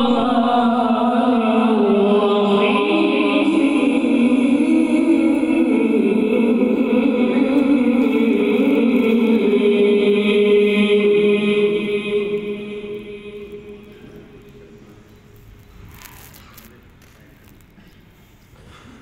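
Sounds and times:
unaccompanied vocal chanting: 0.0s - 15.1s
low background noise: 0.0s - 19.0s.

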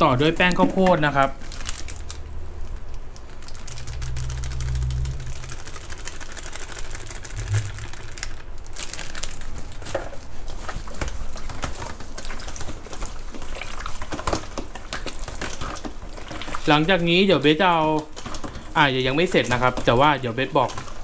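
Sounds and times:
hands kneading wet meat: 0.0s - 21.0s
packet crinkling: 0.3s - 16.9s.

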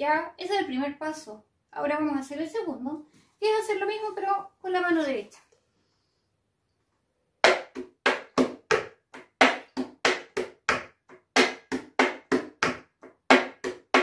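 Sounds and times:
sharp hand slaps: 7.4s - 14.0s.

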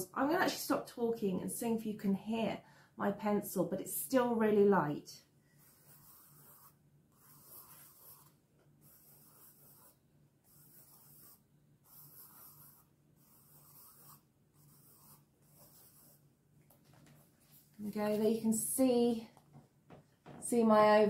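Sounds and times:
pencil scratching on paper: 5.5s - 16.3s.

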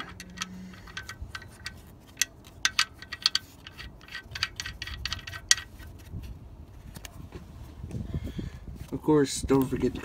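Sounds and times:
light metallic clicks and clinks: 0.0s - 5.6s.

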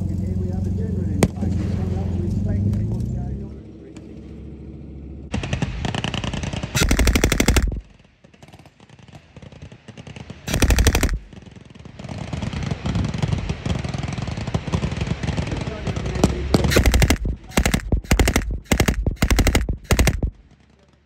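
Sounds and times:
lighter rapid gunfire: 5.3s - 20.7s
machine gun bursts: 5.4s - 7.9s, 10.5s - 11.3s, 16.6s - 20.4s.

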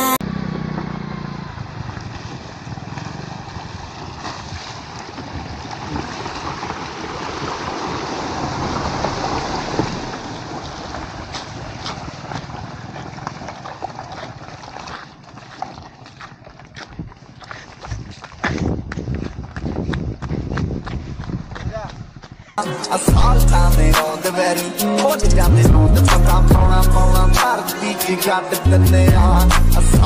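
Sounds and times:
car engine running low: 0.0s - 15.4s
tyres splashing through water: 1.9s - 18.4s.

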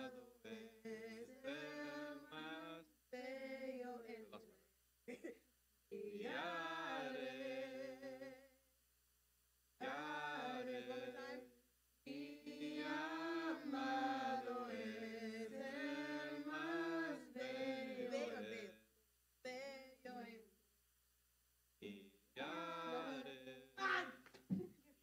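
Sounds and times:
women's choir singing unaccompanied: 0.0s - 4.4s, 5.9s - 8.5s, 9.8s - 18.8s, 19.5s - 20.4s, 21.8s - 23.8s.

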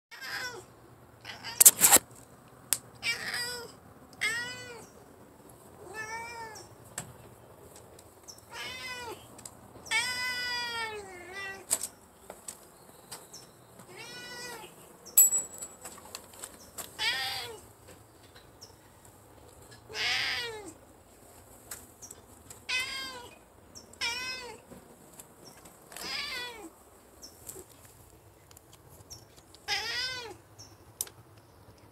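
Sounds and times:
cat meowing: 3.0s - 4.9s, 5.8s - 6.7s, 8.5s - 9.3s, 9.9s - 11.7s, 13.9s - 14.7s, 24.0s - 24.6s, 26.0s - 26.7s.

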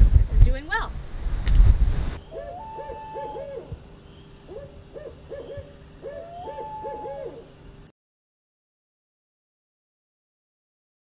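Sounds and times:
owl hooting: 2.2s - 7.7s.

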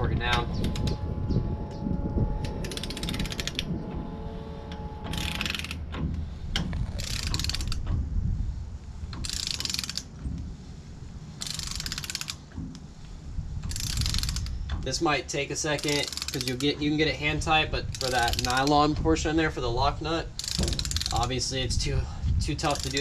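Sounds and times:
steady low rumble: 0.0s - 23.0s
ratchet pawl clicks: 2.4s - 3.7s, 5.0s - 5.8s, 6.8s - 7.9s, 9.1s - 10.1s, 11.4s - 12.4s, 13.6s - 14.8s, 15.8s - 16.8s, 17.9s - 18.8s, 20.3s - 21.4s, 22.6s - 23.0s.

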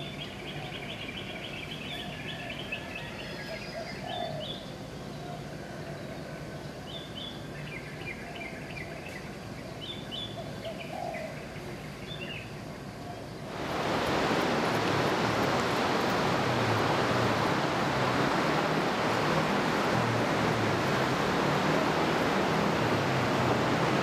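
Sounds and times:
ocean surf breaking: 13.5s - 24.0s.

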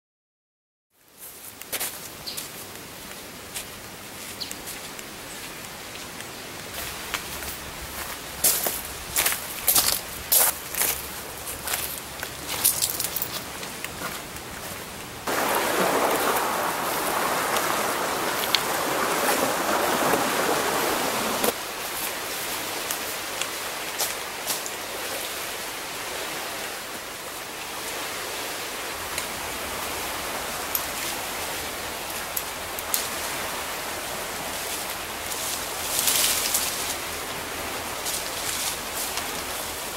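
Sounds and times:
boots crunching on shells: 9.7s - 13.5s
steady rushing noise: 14.2s - 23.0s.

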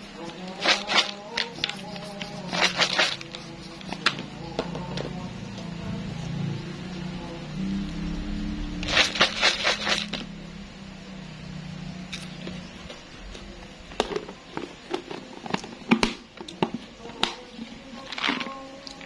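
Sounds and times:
chips rattling in plastic jar: 0.5s - 3.3s, 8.8s - 10.2s.

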